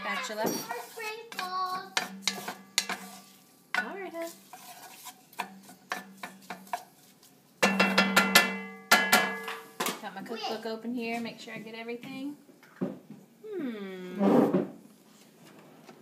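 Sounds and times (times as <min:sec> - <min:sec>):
spatula scraping pot: 0:00.0 - 0:08.6
spatula knocking against pot: 0:01.3 - 0:03.1, 0:07.6 - 0:09.6.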